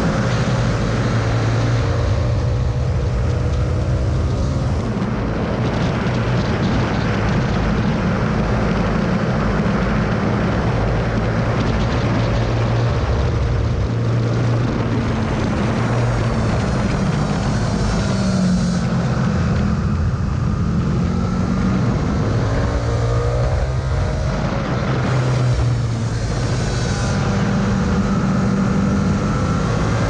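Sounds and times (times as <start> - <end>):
motorcycle engine at high speed: 0.0 - 30.0
wind rush: 0.0 - 30.0.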